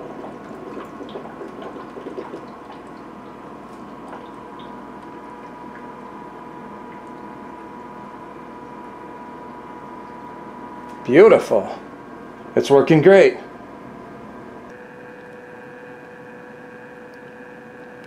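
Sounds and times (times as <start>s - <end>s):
water trickling and gurgling: 0.0s - 8.1s
pump humming: 0.0s - 18.0s.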